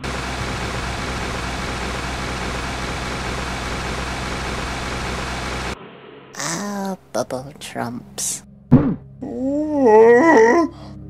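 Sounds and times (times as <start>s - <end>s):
hood hair dryers blowing air: 0.0s - 5.8s.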